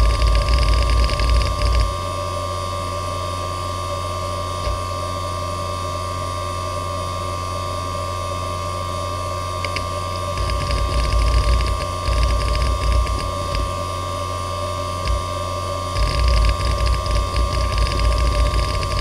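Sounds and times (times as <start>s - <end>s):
hard drive seek click: 0.0s - 1.9s, 9.6s - 13.8s, 15.0s - 15.2s, 15.9s - 19.0s
hard drive spindle whine: 0.0s - 19.0s.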